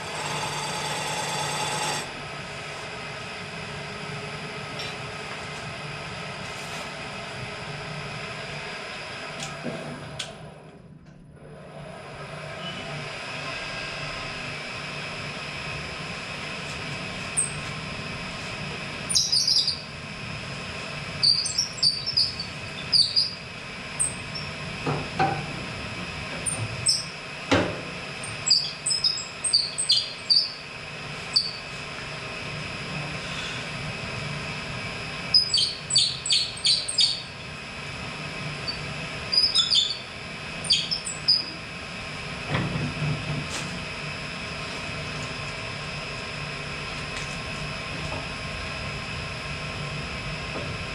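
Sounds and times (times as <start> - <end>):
wood lathe humming: 0.0 - 4.8.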